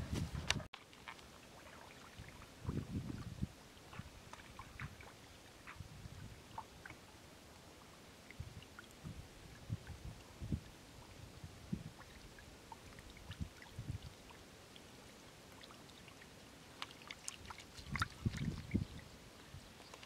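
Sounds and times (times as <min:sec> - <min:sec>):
fish thrashing in water: 0:16.8 - 0:18.8.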